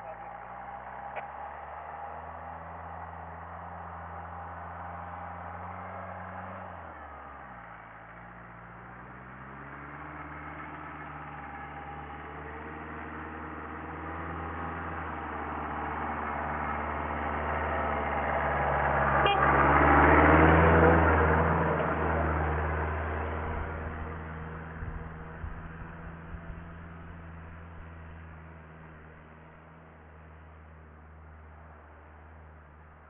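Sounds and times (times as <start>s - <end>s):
off-road vehicle engine passing: 0.0s - 33.0s.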